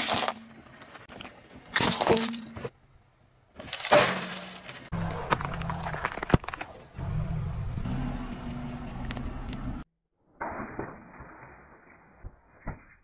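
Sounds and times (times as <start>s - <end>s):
tyre crunching over objects: 0.0s - 2.7s, 3.6s - 6.9s
car engine running low: 5.0s - 9.9s.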